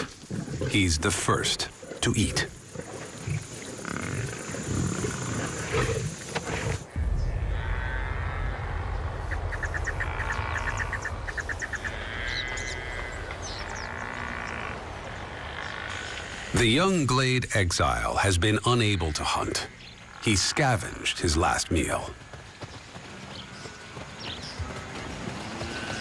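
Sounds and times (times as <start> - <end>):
steady low rumble: 6.8 - 12.2.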